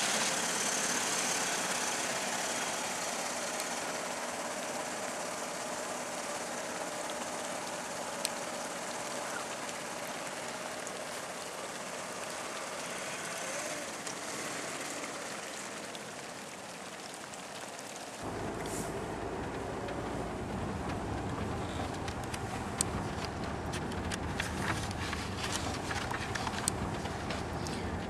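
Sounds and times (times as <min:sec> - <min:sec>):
car engine idling: 0:00.0 - 0:28.0
rain on wet ground: 0:00.0 - 0:28.0.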